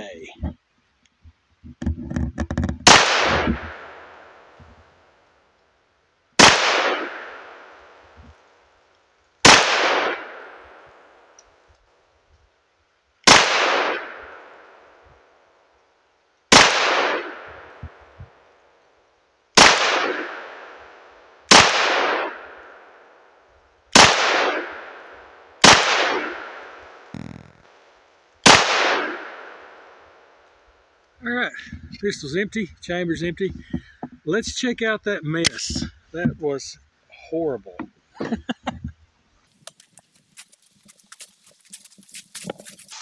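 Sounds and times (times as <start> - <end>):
pistol shots echoing: 2.9 - 4.5, 6.4 - 8.0, 9.5 - 11.2, 13.3 - 14.8, 16.5 - 18.0, 19.6 - 23.1, 24.0 - 27.1, 28.4 - 30.1.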